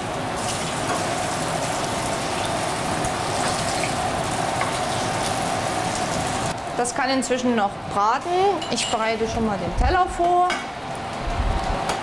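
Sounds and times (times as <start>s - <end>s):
patties sizzling in frying pan: 0.0s - 6.7s.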